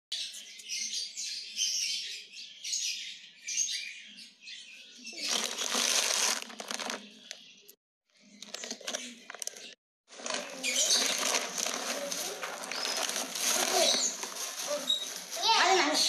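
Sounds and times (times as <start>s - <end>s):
small birds chirping: 0.1s - 16.0s
rustling: 5.2s - 7.1s, 8.4s - 16.0s.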